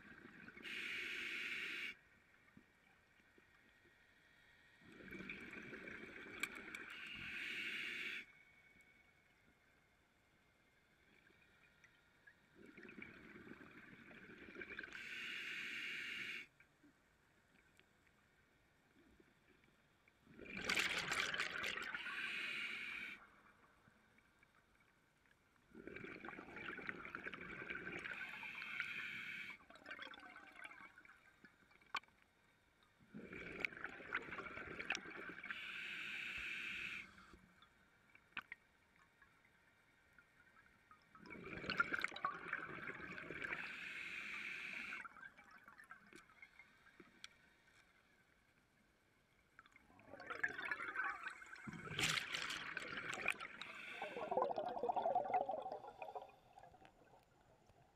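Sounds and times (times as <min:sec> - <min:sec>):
scuba regulator breathing: 0:00.6 - 0:02.0, 0:06.9 - 0:08.3, 0:15.0 - 0:16.5, 0:22.0 - 0:23.2, 0:28.3 - 0:29.6, 0:35.5 - 0:37.3, 0:43.6 - 0:45.0, 0:53.4 - 0:54.6.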